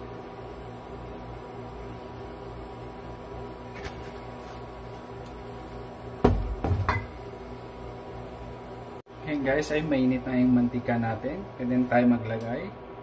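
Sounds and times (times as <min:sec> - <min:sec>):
induction cooktop hum: 0:00.0 - 0:13.0
loud knocks and thuds: 0:06.2 - 0:07.1
faint high whine: 0:06.9 - 0:13.0.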